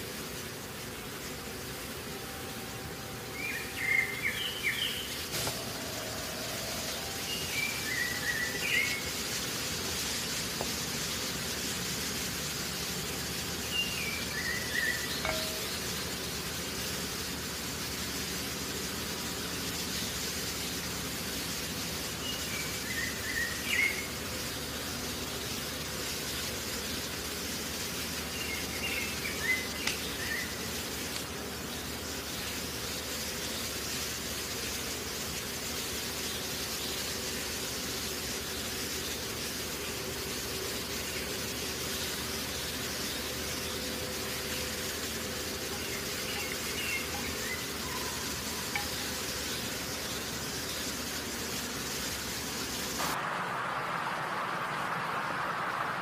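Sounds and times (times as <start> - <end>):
background hiss: 0.0 - 56.0
bird chirping phrase: 3.2 - 9.2.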